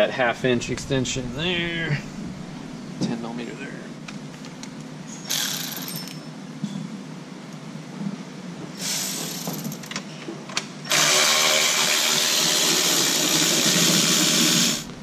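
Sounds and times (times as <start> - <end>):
cordless power tool spinning: 10.9 - 14.9.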